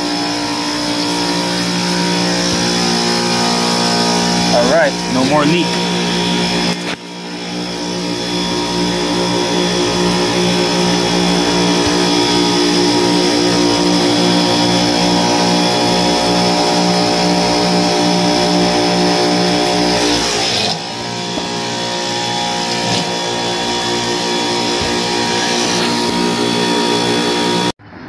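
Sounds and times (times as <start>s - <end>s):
refrigeration machine hum: 0.0s - 27.8s.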